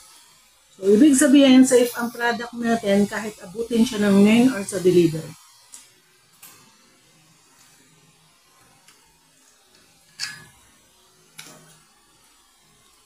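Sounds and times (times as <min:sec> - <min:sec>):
cutlery clinking on metal plate: 0:10.2 - 0:10.5.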